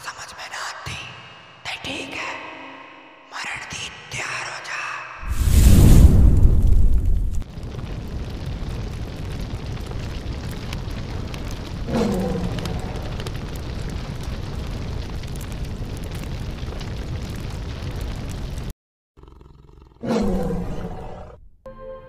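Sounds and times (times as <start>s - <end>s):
fire roar dropping in pitch: 5.2s - 18.6s
low rumble of flames: 5.2s - 18.7s.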